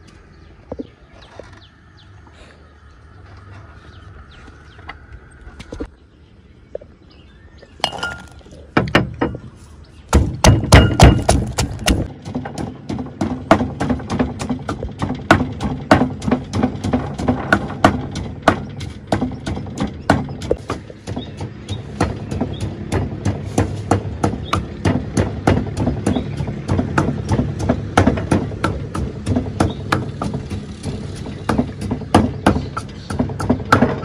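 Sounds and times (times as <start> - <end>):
wooden pestle pounding in mortar: 10.1 - 34.0.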